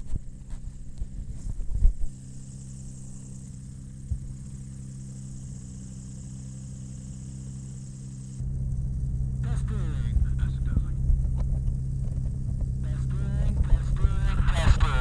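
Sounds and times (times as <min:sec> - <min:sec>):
ultralight engine idling: 0:00.0 - 0:15.0.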